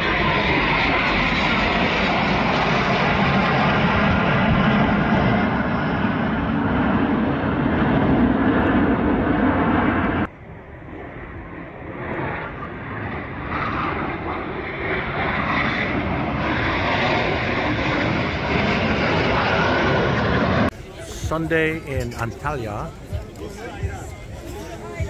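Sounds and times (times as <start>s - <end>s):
military jets flying past: 0.0s - 25.0s.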